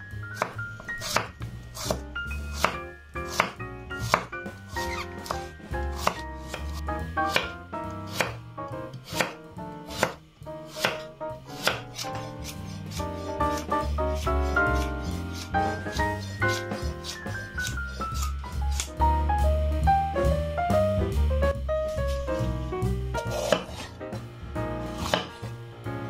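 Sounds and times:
background music: 0:00.0 - 0:26.0
knife chopping on cutting board: 0:00.3 - 0:08.4, 0:09.0 - 0:18.9, 0:23.2 - 0:24.0, 0:24.9 - 0:25.5.

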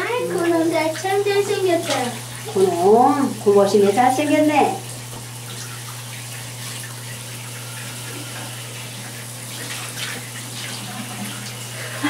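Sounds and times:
small water splashes: 0:00.0 - 0:03.6, 0:04.8 - 0:11.7
shower water rushing: 0:00.0 - 0:12.0.

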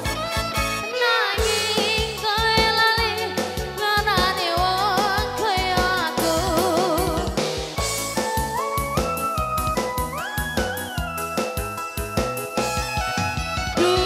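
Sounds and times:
upbeat dance music with singer: 0:00.0 - 0:08.0, 0:13.5 - 0:14.0.

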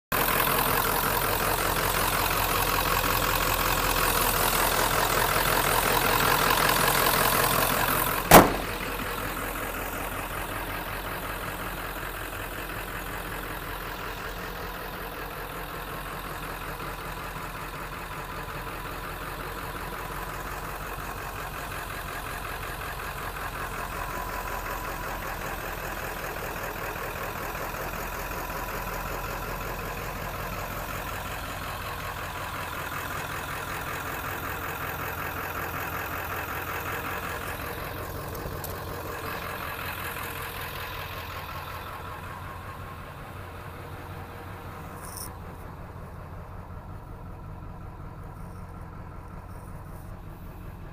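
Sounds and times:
diesel engine idling: 0:00.1 - 0:50.9
sharp bang: 0:08.3 - 0:09.0.

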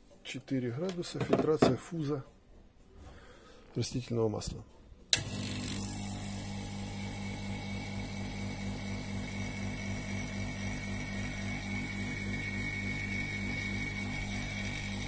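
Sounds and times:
electric vacuum pump humming: 0:05.1 - 0:15.0.

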